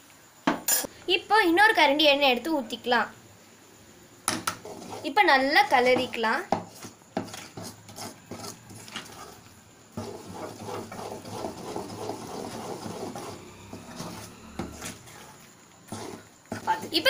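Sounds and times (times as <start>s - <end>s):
ladle stirring thick batter: 4.3s - 17.0s.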